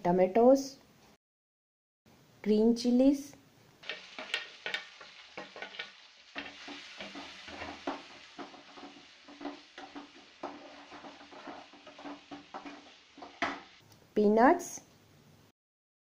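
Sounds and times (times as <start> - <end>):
steel spoon scraping a pan: 3.8 - 13.8
vegetables sizzling in hot oil: 3.8 - 13.8.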